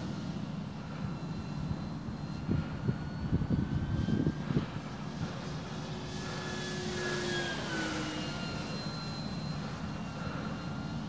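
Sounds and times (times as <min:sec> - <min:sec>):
model plane motor whining: 0:00.0 - 0:11.0
wind noise on microphone: 0:01.3 - 0:05.5.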